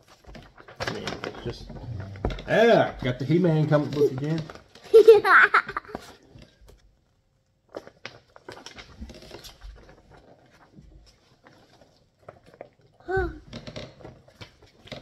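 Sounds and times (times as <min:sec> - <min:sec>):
paper pages rustling: 0:00.0 - 0:06.9, 0:07.7 - 0:12.8.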